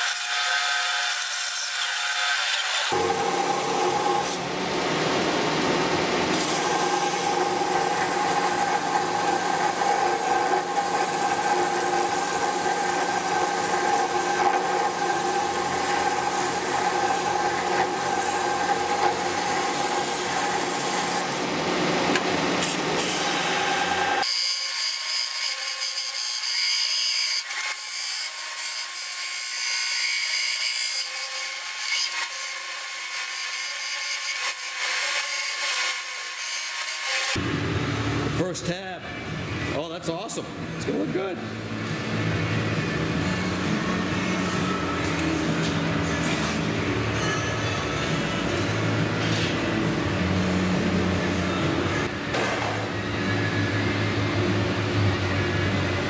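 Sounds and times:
belt sander humming: 2.9 - 24.2
metal grinding on sander belt: 6.3 - 21.5.

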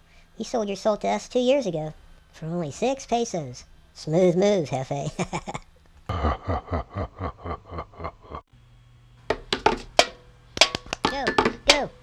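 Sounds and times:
person laughing: 5.0 - 8.5.

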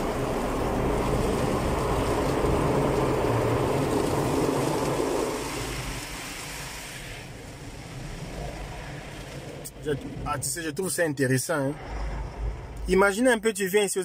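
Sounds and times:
car wash brushes scrubbing: 0.0 - 9.8
water spraying: 0.0 - 10.4.

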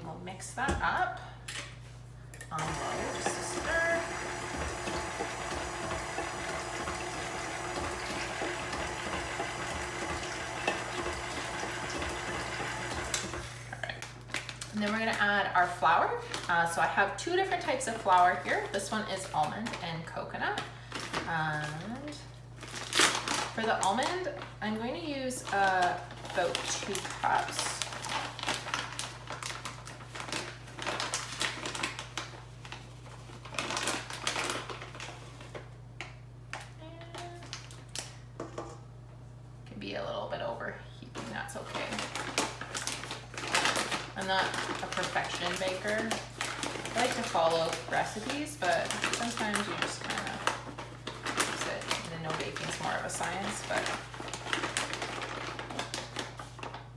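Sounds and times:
low electrical hum: 0.0 - 56.9
stand mixer motor humming: 2.6 - 13.7
plastic bag crinkling: 20.8 - 24.6, 25.4 - 35.7, 41.2 - 56.9.

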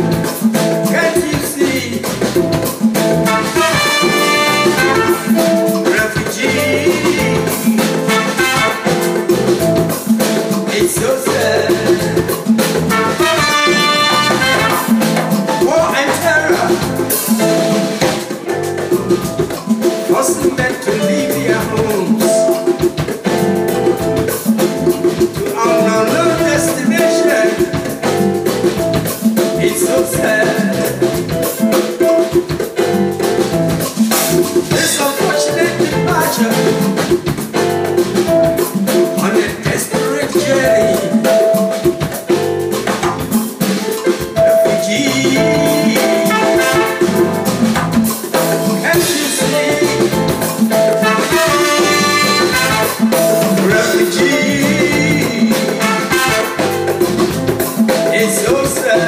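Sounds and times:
live band playing: 0.0 - 59.0.

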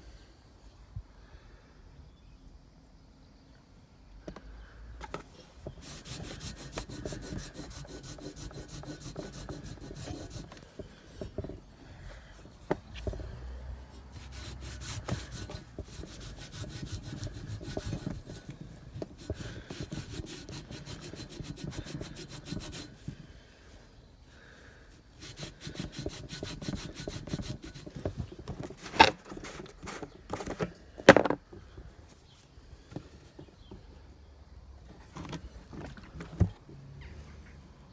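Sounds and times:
rag scrubbing metal tube: 5.6 - 11.5, 14.0 - 23.1, 25.1 - 30.4.

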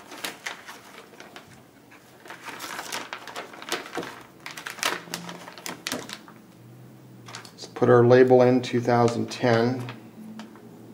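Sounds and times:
plastic bag crinkling: 0.0 - 6.4, 7.2 - 7.6.

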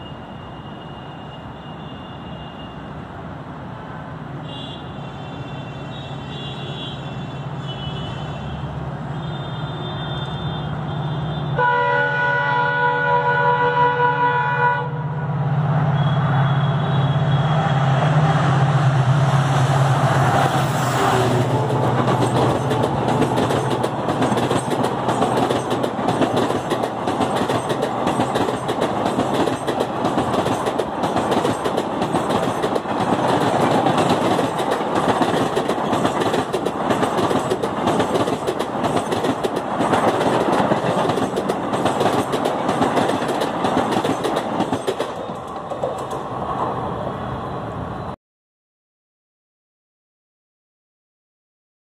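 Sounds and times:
diesel locomotive drone: 0.0 - 48.2
train wheels on rail: 15.4 - 48.1
clatter over rail joints: 21.5 - 46.3.

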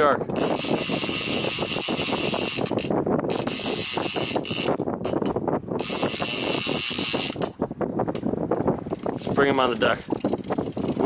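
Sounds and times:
fishing reel clicking and ratcheting: 0.4 - 7.6, 8.9 - 11.0.

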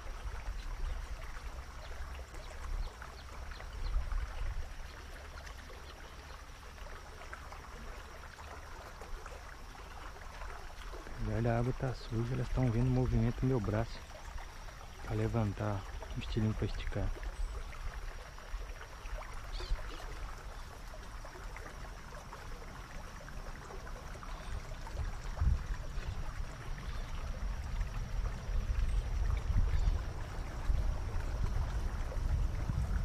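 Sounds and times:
faint steady hiss: 0.0 - 33.0
wind buffeting microphone: 24.8 - 33.0.

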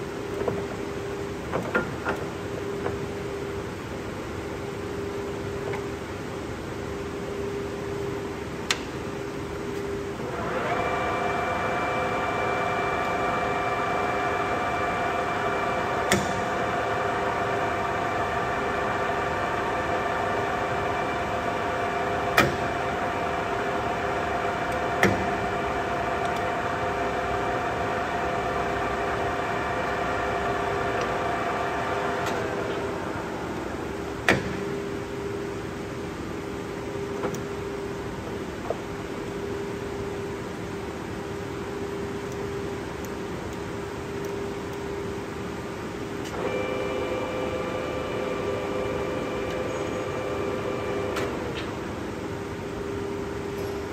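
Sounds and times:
steady hum: 0.0 - 53.9
lathe gearing whine: 10.0 - 37.1, 42.6 - 53.9.

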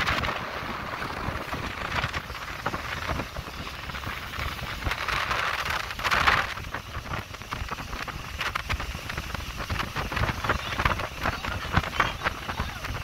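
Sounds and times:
water rushing past motorboat: 0.0 - 13.0
wind buffeting microphone: 0.0 - 13.0.

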